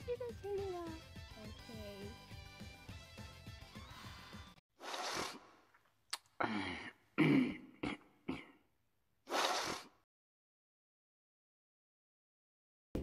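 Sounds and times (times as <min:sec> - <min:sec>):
person breathing: 0:03.7 - 0:05.4
breath puffs: 0:03.7 - 0:05.7, 0:09.3 - 0:10.0
mouth click: 0:06.1 - 0:06.3.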